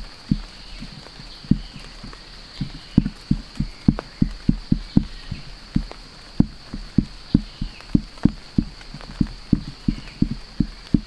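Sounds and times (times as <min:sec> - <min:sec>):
dull thumps: 0:00.0 - 0:11.0
steady high buzz: 0:00.0 - 0:11.0.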